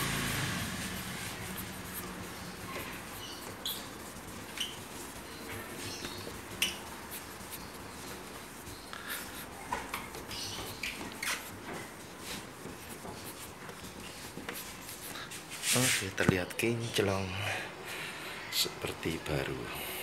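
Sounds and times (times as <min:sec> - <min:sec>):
cloth scrubbing plastic lens: 0:00.0 - 0:16.0
high squeaks: 0:01.4 - 0:07.2.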